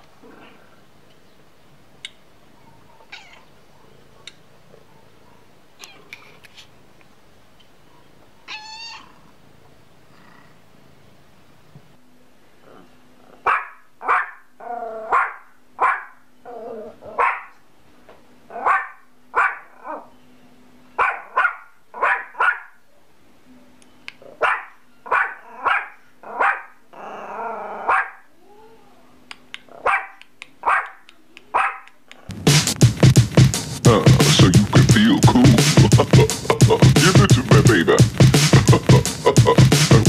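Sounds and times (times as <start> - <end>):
small dog barking: 2.6 - 5.6, 13.4 - 16.2, 17.1 - 17.6, 18.5 - 20.1, 21.0 - 22.8, 24.2 - 26.8, 27.7 - 28.3, 29.7 - 32.0.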